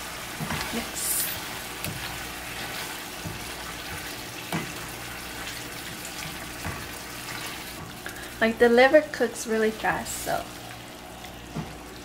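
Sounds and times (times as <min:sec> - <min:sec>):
chicken sizzling in frying pan: 0:00.0 - 0:12.0
spatula scraping pan: 0:00.4 - 0:08.1.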